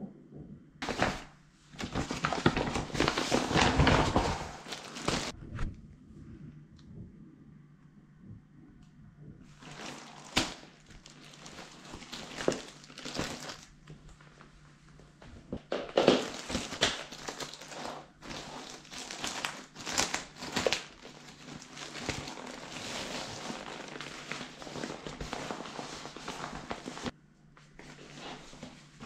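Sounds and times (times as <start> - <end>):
plastic packaging crinkling: 0.8 - 5.4, 9.5 - 13.9, 15.7 - 27.1.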